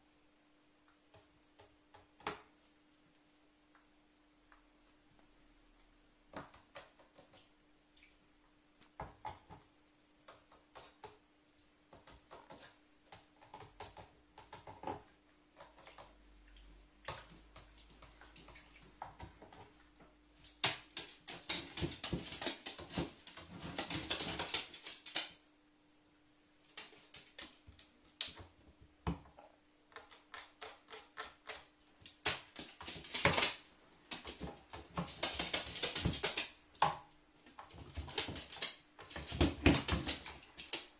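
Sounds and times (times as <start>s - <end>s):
bird claws clicking on wood floor: 20.5s - 25.4s, 29.9s - 37.0s, 37.6s - 40.9s.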